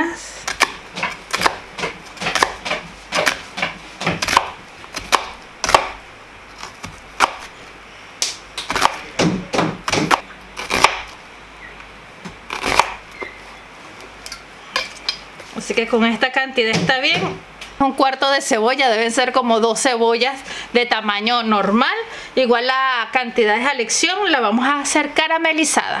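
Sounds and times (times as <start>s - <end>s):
knife cutting on plastic board: 0.5s - 6.0s.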